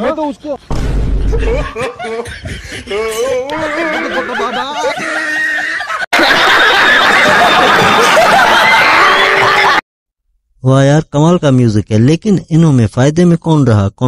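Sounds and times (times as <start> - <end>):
person laughing: 1.2 - 6.1
studio audience laughing: 1.3 - 3.0, 3.7 - 9.8.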